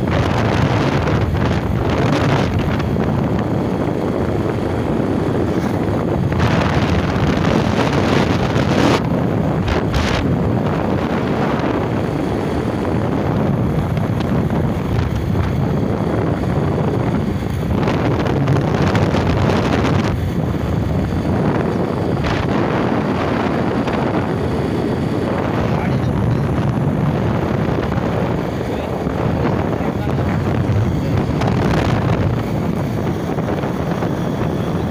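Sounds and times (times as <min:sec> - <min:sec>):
motorcycle engine running: 0:00.0 - 0:34.9
wind rushing over microphone: 0:00.0 - 0:34.9.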